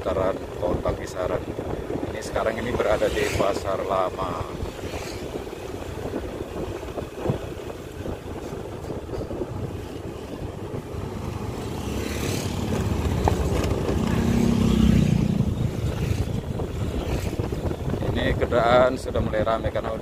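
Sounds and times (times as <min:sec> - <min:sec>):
oncoming traffic passing: 0:00.0 - 0:18.6
wind on microphone: 0:00.0 - 0:20.0
motorcycle engine running: 0:04.4 - 0:18.1
tyre noise on wet road: 0:10.0 - 0:17.8.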